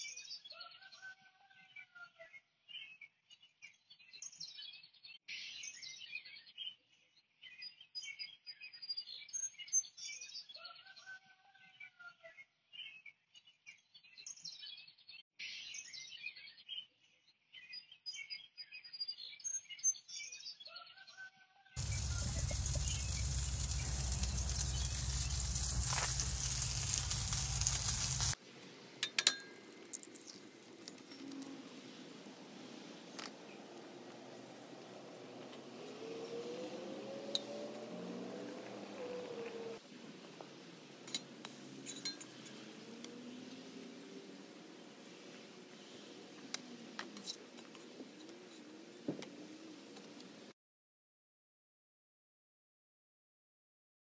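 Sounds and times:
campfire burning with hiss: 0:21.8 - 0:28.4, 0:39.8 - 0:46.4
wind rumbling on microphone: 0:21.8 - 0:28.4
small birds chirping: 0:21.8 - 0:36.8.

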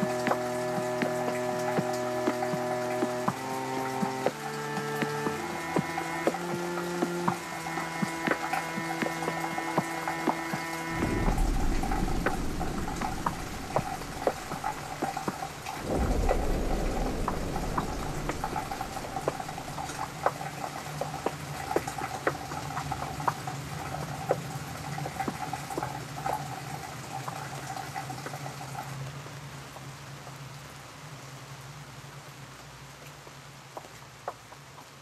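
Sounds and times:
rain dripping on hard surfaces: 0:00.0 - 0:35.0
steady hum: 0:10.9 - 0:20.3
low rumble: 0:10.9 - 0:20.4.

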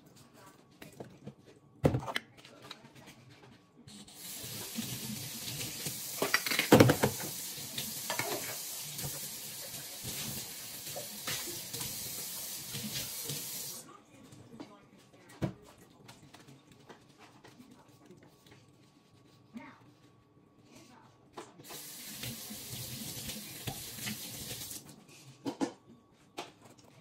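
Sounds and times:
tap water running and splashing: 0:04.2 - 0:13.8, 0:21.6 - 0:24.9
dishes clinking in sink: 0:08.0 - 0:08.7.

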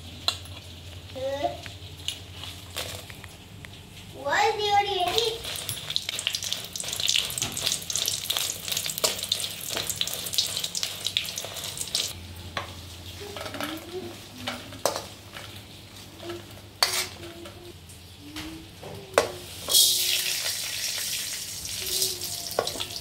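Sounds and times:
chillies sizzling in oil: 0:04.0 - 0:18.0, 0:19.2 - 0:23.0
spoon scraping a pan: 0:16.2 - 0:17.3.

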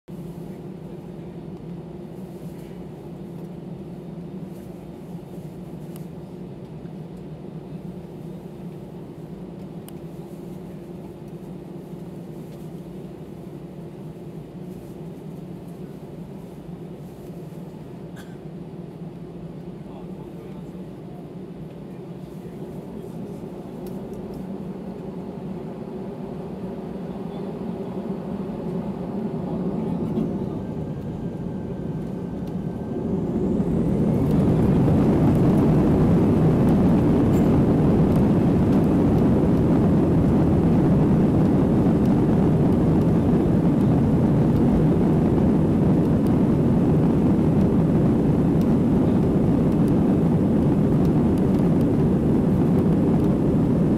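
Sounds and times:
jet engines spooling up: 0:21.4 - 0:53.9
rush of air noise: 0:22.2 - 0:53.9.

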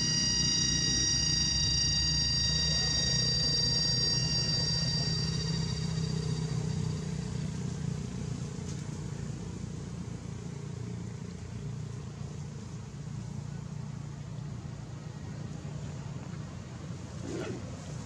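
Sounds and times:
high thin tones: 0:00.0 - 0:07.5
vehicle engine rumble: 0:00.0 - 0:18.0.

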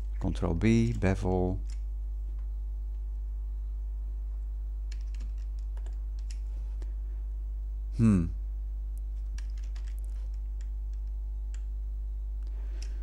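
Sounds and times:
electrical mains hum: 0:00.0 - 0:13.0
computer keystrokes and clicks: 0:00.1 - 0:02.5, 0:04.9 - 0:06.5, 0:09.2 - 0:11.7.

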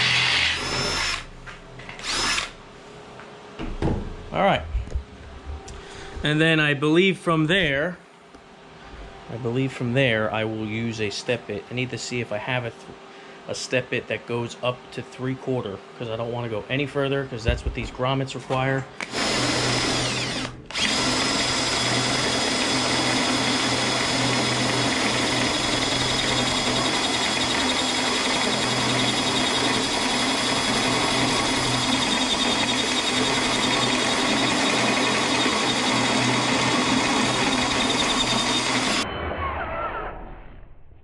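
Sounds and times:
cordless drill cutting steel: 0:00.0 - 0:01.3, 0:01.9 - 0:02.6, 0:19.0 - 0:39.1.

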